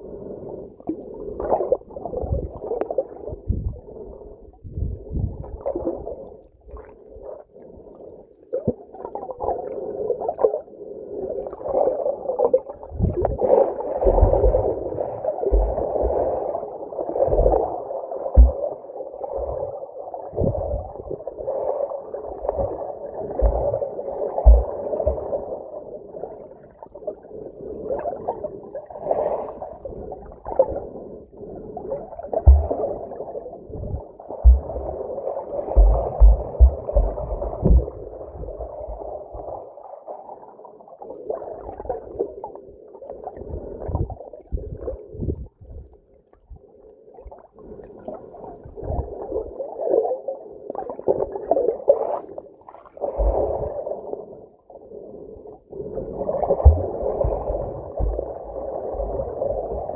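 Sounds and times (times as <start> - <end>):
underwater gurgling: 0.0 - 59.9
low thumps underwater: 3.3 - 3.8, 4.6 - 6.0, 12.9 - 13.4, 14.0 - 16.3, 17.2 - 17.7, 18.3 - 18.7, 23.4 - 23.8, 24.4 - 25.4, 32.4 - 35.0, 35.6 - 39.6, 56.4 - 59.9.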